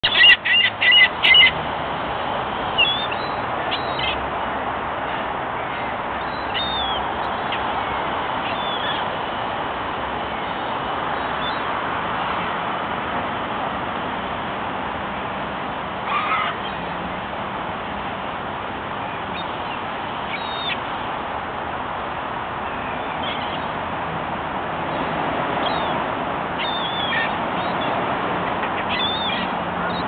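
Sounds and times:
gulls calling: 0.0s - 1.6s, 2.4s - 12.6s, 16.0s - 17.3s, 18.9s - 21.2s, 22.5s - 24.2s, 24.8s - 30.0s.

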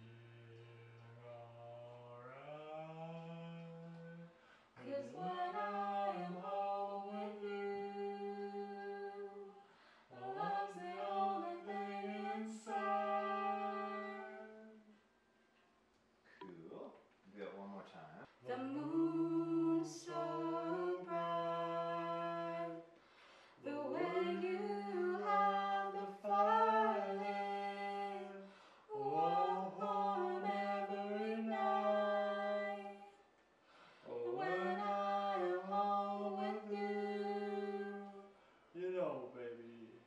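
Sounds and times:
man and woman singing together: 2.7s - 15.0s, 18.5s - 22.9s, 23.6s - 33.2s, 34.0s - 38.3s.

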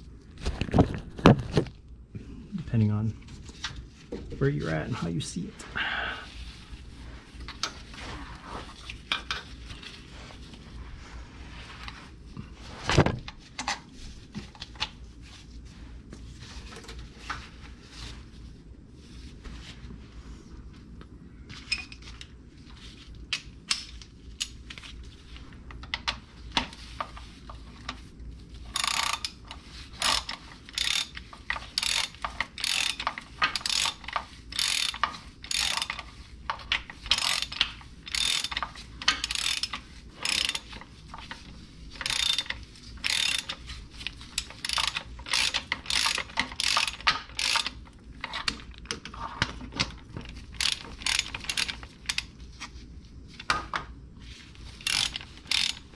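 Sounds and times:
socket ratchet clicking: 28.7s - 36.1s, 37.1s - 40.8s, 42.0s - 43.6s, 44.3s - 47.8s, 50.6s - 52.3s, 54.8s - 55.9s.

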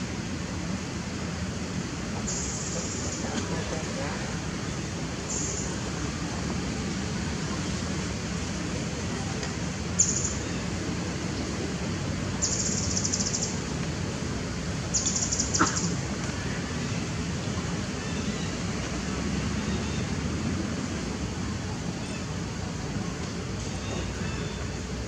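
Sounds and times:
outdoor background noise: 0.0s - 25.0s.

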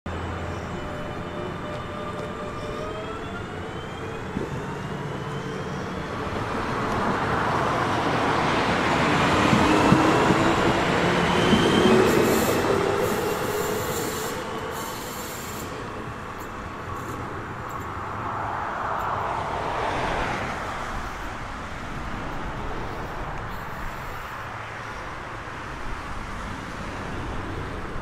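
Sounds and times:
train rolling and wheel noise: 0.1s - 28.0s
electric train whine accelerating: 0.2s - 16.3s.

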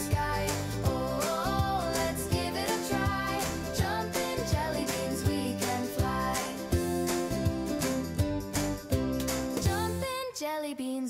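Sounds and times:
children's music with steady beat: 0.0s - 10.4s.

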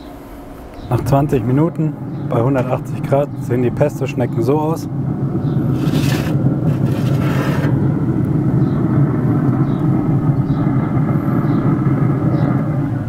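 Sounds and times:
low rumble: 0.0s - 13.0s
metal tray scraping on grate: 5.7s - 7.8s.

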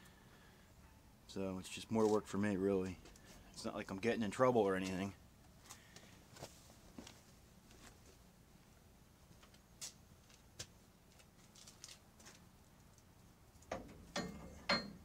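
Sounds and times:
metallic knocks from handling tools: 13.7s - 15.0s.

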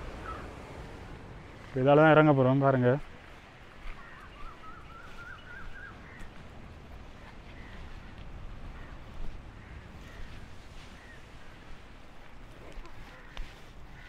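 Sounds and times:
low steady rumble: 0.0s - 2.3s
footsteps on gravel: 1.2s - 14.0s
bird chirps: 3.9s - 6.3s
bird whistle-like call: 4.3s - 6.0s.

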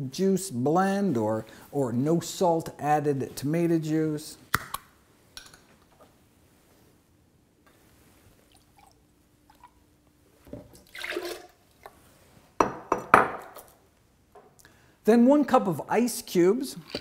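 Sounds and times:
juice pouring into blender jar: 10.8s - 11.9s.

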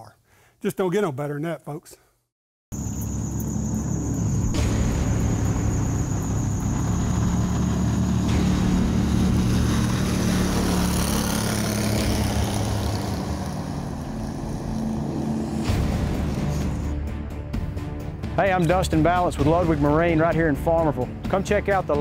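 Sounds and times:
outboard motor drone: 2.8s - 16.9s.

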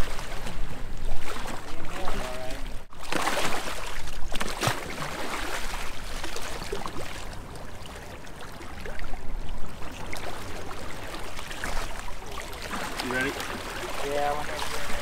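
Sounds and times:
water sloshing against hull: 0.0s - 15.0s
fish thrashing and splashing: 2.9s - 7.0s.

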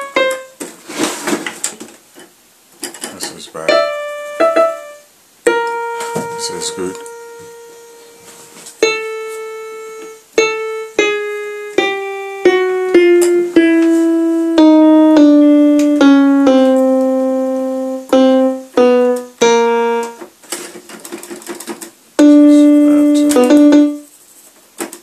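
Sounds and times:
electronic keyboard single notes: 0.0s - 0.6s, 3.6s - 20.3s, 22.2s - 24.1s.

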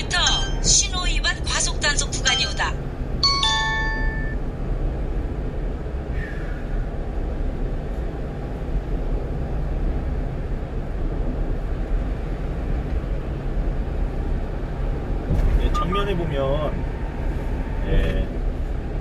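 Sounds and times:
truck engine and road noise: 0.0s - 19.0s.

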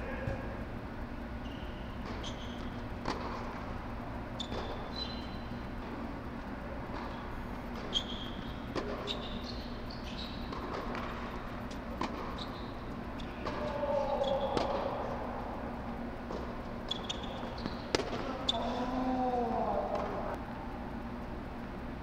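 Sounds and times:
steady low hum: 0.0s - 22.0s
shoe squeaks on hard court: 1.4s - 2.8s, 4.4s - 5.6s, 7.8s - 10.7s, 12.2s - 13.4s, 16.8s - 18.7s
tennis ball bouncing: 2.0s - 3.6s, 10.4s - 12.4s, 14.4s - 15.0s, 16.2s - 18.3s
racket hitting ball: 10.4s - 12.3s, 13.4s - 13.7s, 14.5s - 15.0s, 17.9s - 18.4s.

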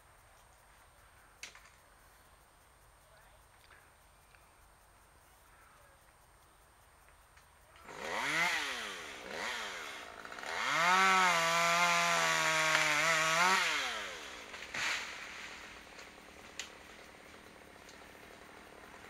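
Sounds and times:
chainsaw revving: 7.8s - 19.0s.

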